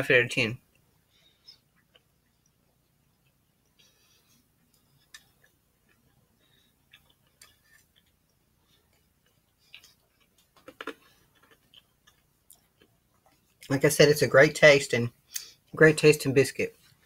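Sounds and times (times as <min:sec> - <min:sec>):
biscuit crackling: 0:00.6 - 0:13.8.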